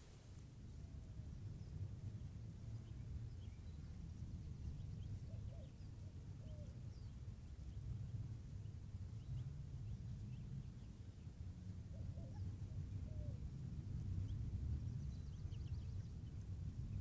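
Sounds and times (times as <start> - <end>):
soft lower bird calls: 2.8 - 8.0, 8.6 - 13.4.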